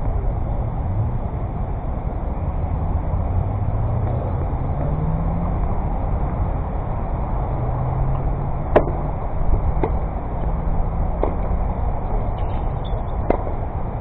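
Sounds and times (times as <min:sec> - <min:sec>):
low rumble: 0:00.0 - 0:14.0
tennis ball hits and bounces: 0:08.1 - 0:10.1, 0:11.1 - 0:11.7, 0:12.4 - 0:13.6.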